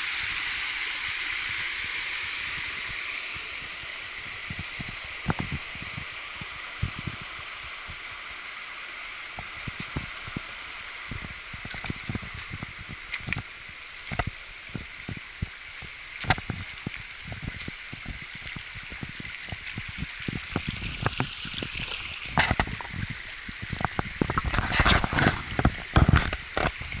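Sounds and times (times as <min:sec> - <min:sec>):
stream running over rocks: 0:00.0 - 0:27.0
footsteps on loose stones: 0:22.3 - 0:23.0.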